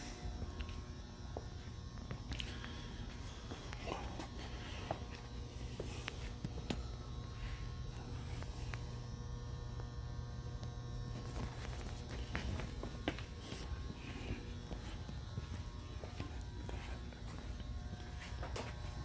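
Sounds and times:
low hum with faint buzz: 0.0 - 19.0.

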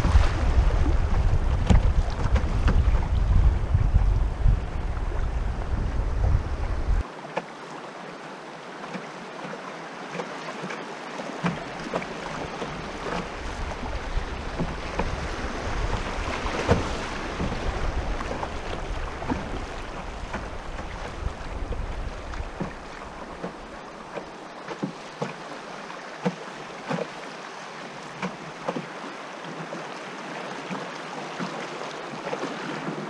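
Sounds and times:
wind rumble on microphone: 0.0 - 7.0, 12.3 - 23.8
water rushing past a canoe: 0.0 - 33.0
small knocks on a hull: 1.1 - 4.1, 11.4 - 15.2, 15.8 - 25.4, 26.2 - 27.2, 28.2 - 28.9.

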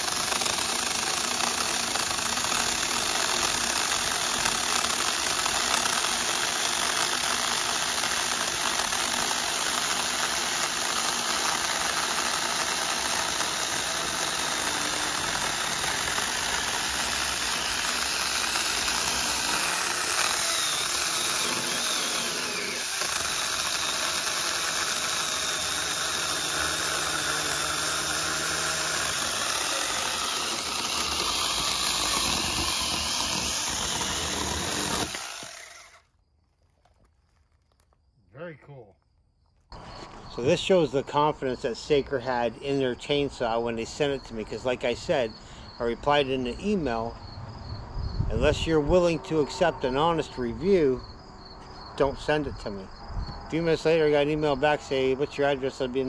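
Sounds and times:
mini chainsaw cutting branch: 0.0 - 36.1.

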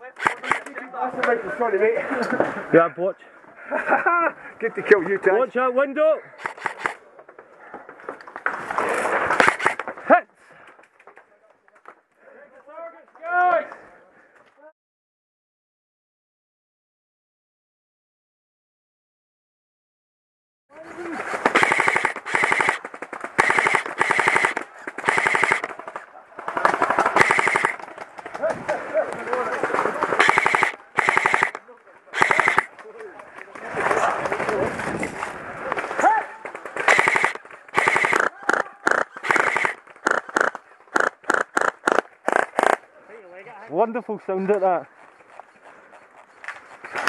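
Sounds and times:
airsoft rifles firing bursts: 0.1 - 0.8, 6.4 - 7.0, 8.7 - 9.9, 21.1 - 28.3, 29.5 - 32.8, 36.5 - 42.8.

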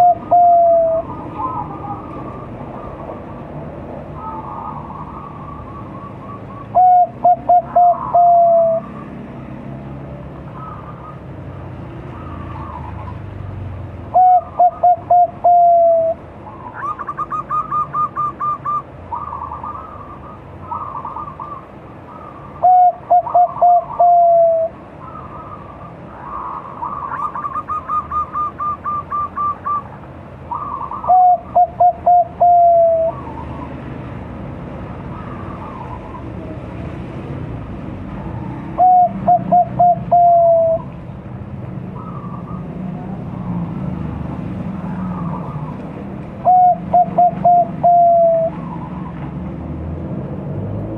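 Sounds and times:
dove cooing: 0.0 - 3.1, 4.2 - 9.2, 10.5 - 11.3, 14.1 - 33.7, 38.4 - 41.0, 46.4 - 49.2.

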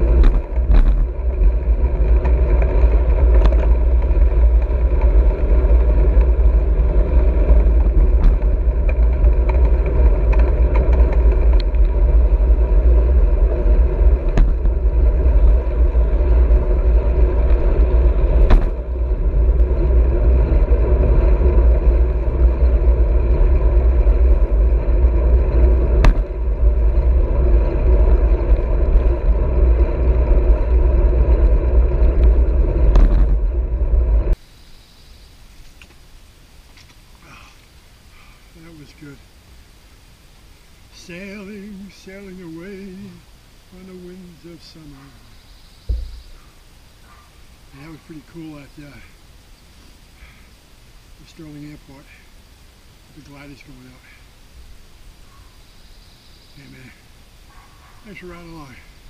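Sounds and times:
wind buffeting microphone: 0.0 - 34.4
bike tyres rolling on asphalt: 0.0 - 59.0
sharp knocks: 26.0 - 26.2, 45.9 - 46.4.

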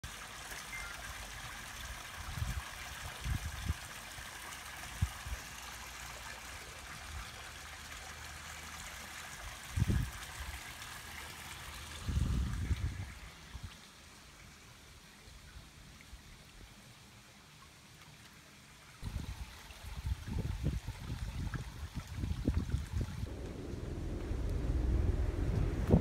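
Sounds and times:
creek trickling over rocks: 0.0 - 26.0
dull low thumps: 23.2 - 26.0.

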